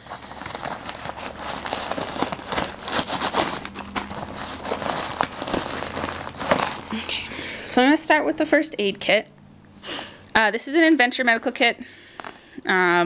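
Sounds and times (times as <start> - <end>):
packaging crinkling: 0.0 - 7.8, 12.0 - 12.6
fabric rustling: 0.0 - 7.9.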